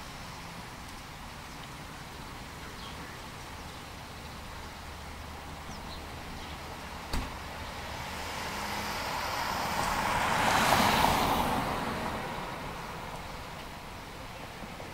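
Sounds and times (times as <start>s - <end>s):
vehicle passing by: 5.4s - 14.0s.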